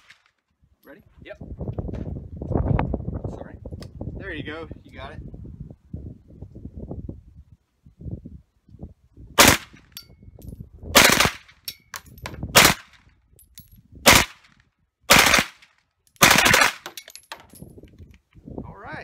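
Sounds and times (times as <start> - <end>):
submachine gun bursts: 16.2 - 17.0.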